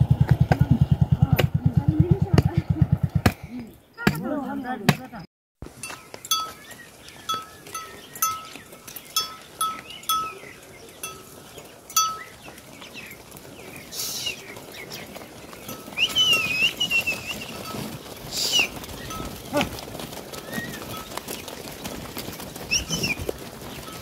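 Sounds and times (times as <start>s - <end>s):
metal livestock bell clanking: 5.8s - 6.6s, 7.3s - 12.4s, 15.6s - 16.1s, 17.6s - 18.1s.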